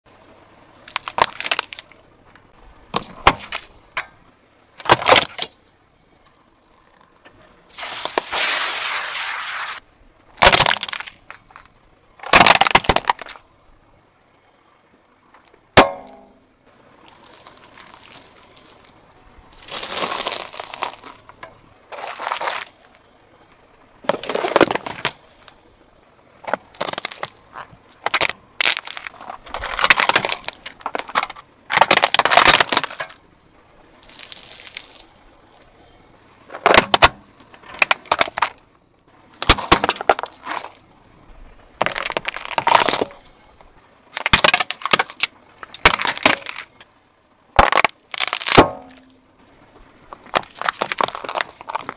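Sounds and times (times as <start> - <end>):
tyre crushing objects: 10.4 - 13.4, 19.6 - 21.3, 21.9 - 22.8, 24.0 - 25.6, 26.4 - 33.2, 36.5 - 38.6, 39.4 - 40.8, 41.8 - 43.2, 44.2 - 46.8, 47.5 - 49.1, 50.1 - 51.9.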